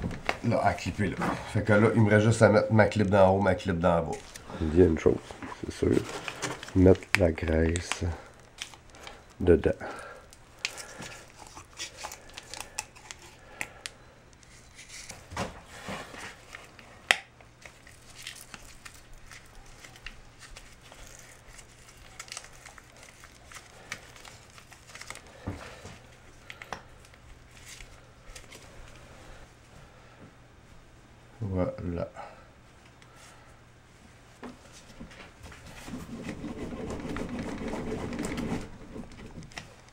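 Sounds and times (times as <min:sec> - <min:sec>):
plastic packet crinkling: 0:04.1 - 0:13.8, 0:17.6 - 0:25.5.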